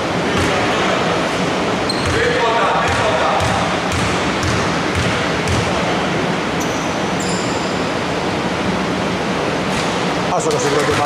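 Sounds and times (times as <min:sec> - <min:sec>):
shoe squeaks: 0:01.9 - 0:02.3, 0:06.6 - 0:07.9
basketball bouncing on hardwood: 0:02.9 - 0:05.7.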